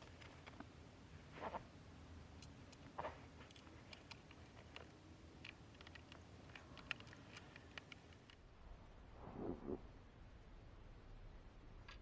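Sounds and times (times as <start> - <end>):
small plastic clicks: 2.3 - 8.4.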